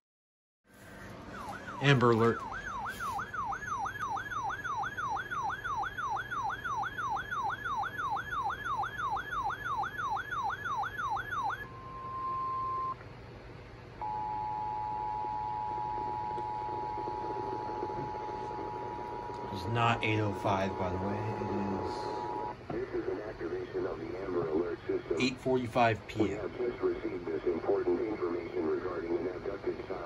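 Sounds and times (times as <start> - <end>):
warbling electronic siren: 0.8 - 13.0, 14.0 - 22.6.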